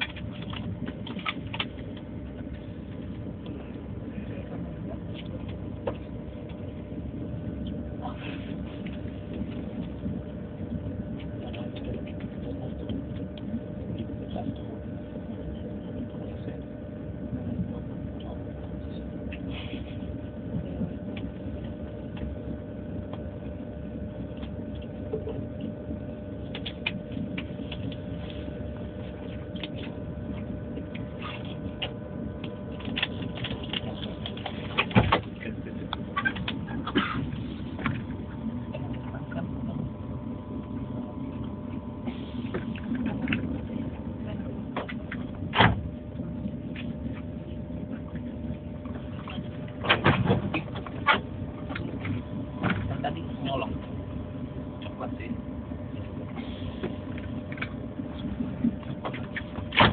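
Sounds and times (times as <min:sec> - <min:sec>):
faint steady hum: 0:00.0 - 0:59.9
train running rumble: 0:00.0 - 0:59.9.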